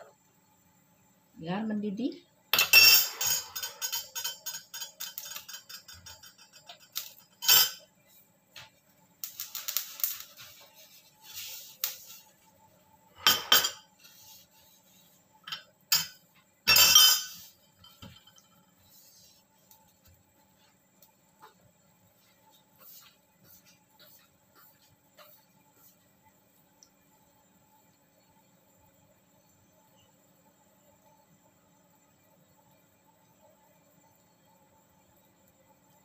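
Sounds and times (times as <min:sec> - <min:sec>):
metal kitchenware clinking: 0:02.6 - 0:07.9, 0:13.2 - 0:13.9, 0:15.4 - 0:18.6.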